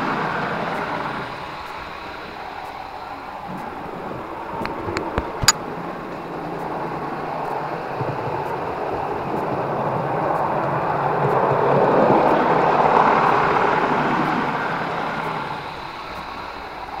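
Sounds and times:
wheels rolling on rails: 0.0 - 17.0.

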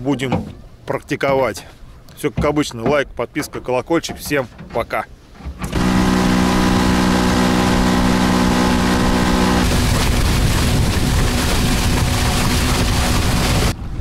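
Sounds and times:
rush of wind and water: 0.0 - 14.0
motorboat engine: 5.2 - 13.8.

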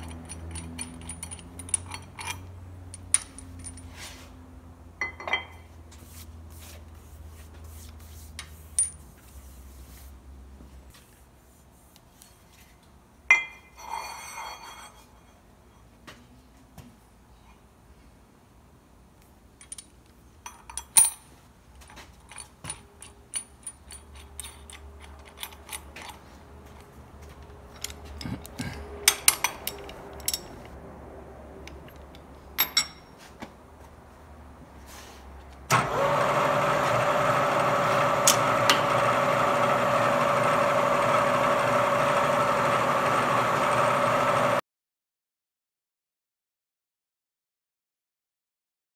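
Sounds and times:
steel parts clinking: 0.0 - 4.0, 19.6 - 26.9, 27.7 - 30.8, 31.6 - 33.2
milling machine humming: 35.7 - 44.6.

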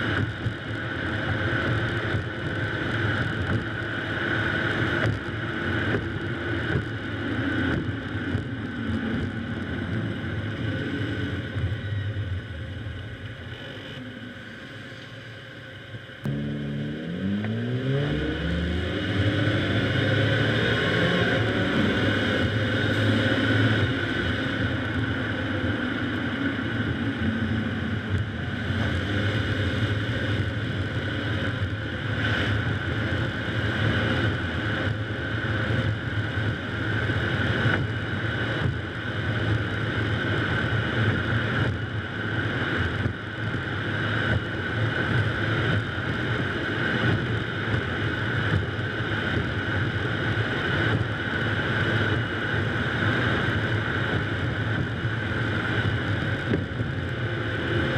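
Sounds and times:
tyre noise on wet road: 0.0 - 14.1
wind rushing over camera: 0.0 - 14.4, 16.9 - 57.9.

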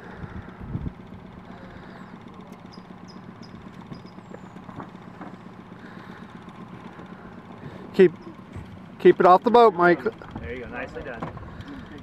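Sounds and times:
outboard motor idling: 0.0 - 12.0.

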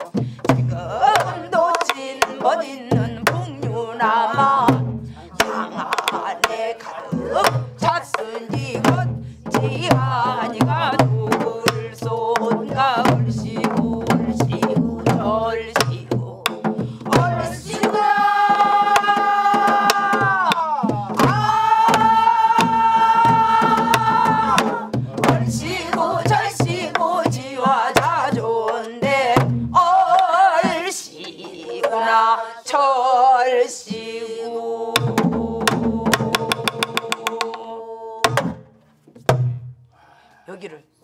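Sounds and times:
voices singing folk song: 0.0 - 38.7
barrel drum thuds: 38.3 - 39.8.

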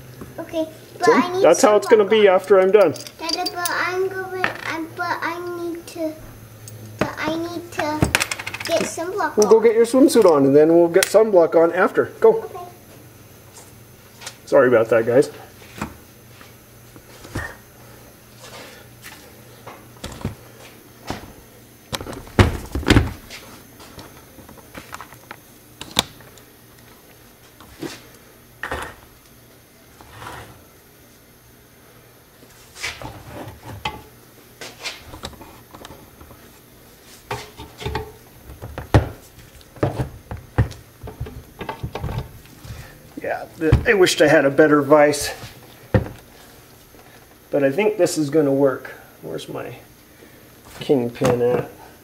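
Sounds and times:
knocks clinks and rubbing of parts: 1.6 - 3.8, 8.0 - 10.4
knocks and clunks at workbench: 37.3 - 39.2, 39.8 - 42.3, 43.7 - 44.0, 45.9 - 46.2
heavy thumps: 43.6 - 44.1.

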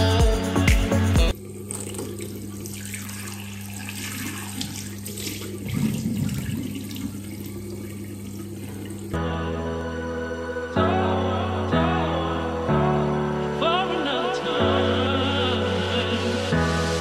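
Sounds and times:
tap running into a sink: 1.7 - 7.2.

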